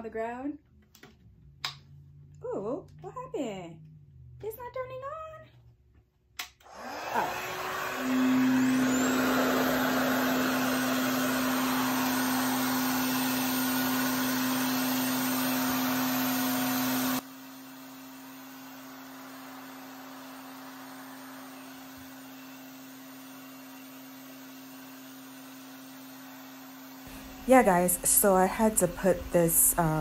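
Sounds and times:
suction motor humming: 6.6s - 17.2s, 27.1s - 30.0s.

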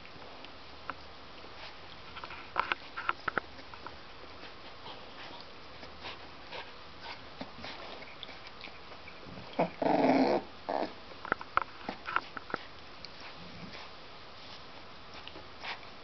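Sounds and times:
dog growling: 9.2s - 11.0s.

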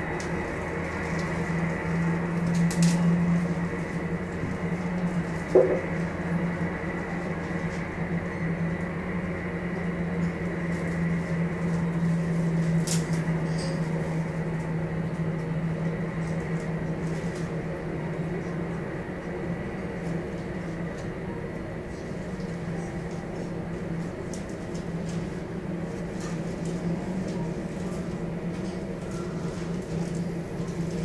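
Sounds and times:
jet engines running: 0.0s - 31.0s
brief knock: 5.6s - 5.8s.

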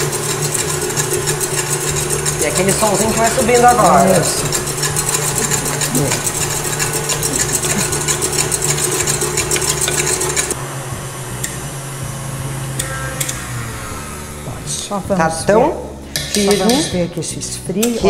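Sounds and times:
whisk ticking against bowl: 0.0s - 10.6s
stand mixer motor hum: 0.0s - 10.8s.

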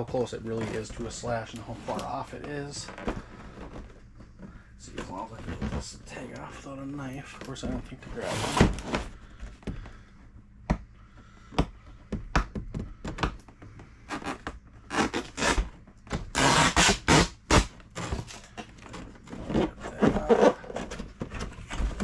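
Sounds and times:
cardboard scraping and rustling: 18.0s - 22.0s
cardboard knocks and thuds: 19.4s - 22.0s.

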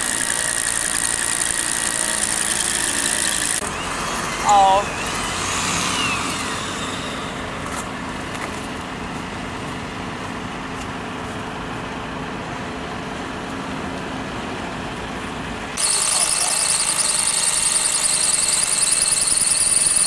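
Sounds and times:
road traffic hum: 1.5s - 16.6s
vehicle passing by: 3.6s - 10.4s.

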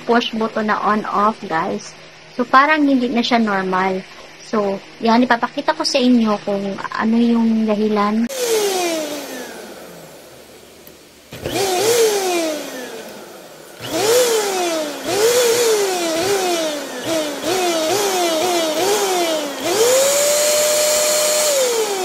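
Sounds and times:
handheld vacuum motor whirring: 8.3s - 22.0s.

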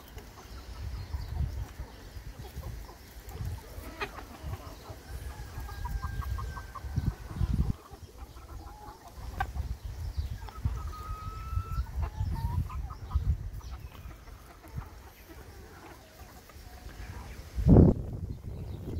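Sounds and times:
hens clucking: 0.0s - 18.9s
hen long drawn-out call: 3.6s - 9.5s, 10.4s - 12.8s.

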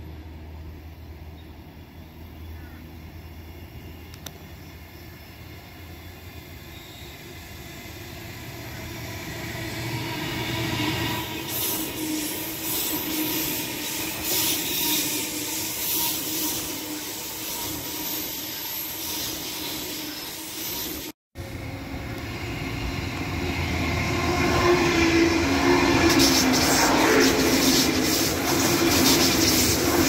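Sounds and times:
electric train humming past: 0.0s - 30.0s
train rolling past: 0.0s - 30.0s.

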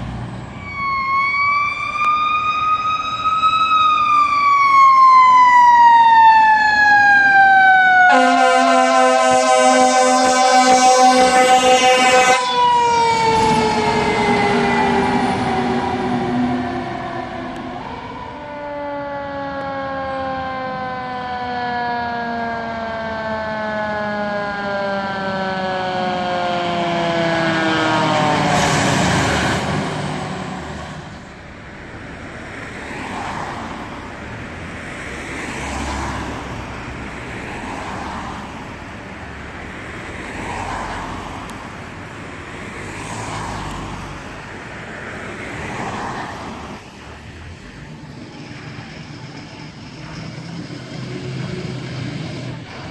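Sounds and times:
siren winding down: 0.5s - 31.3s
wailing siren: 0.5s - 38.8s.

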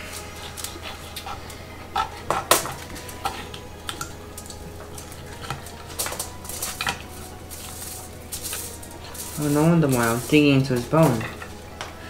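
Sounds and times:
low steady hum: 0.0s - 12.0s
plates and cutlery clinking: 0.0s - 12.0s.

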